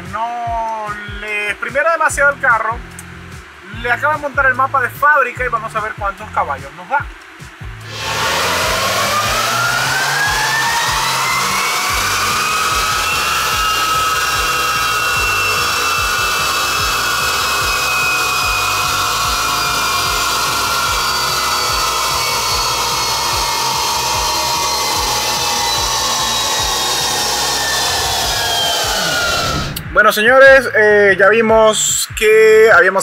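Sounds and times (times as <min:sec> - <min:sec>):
dyno rollers whining: 0:07.8 - 0:30.0.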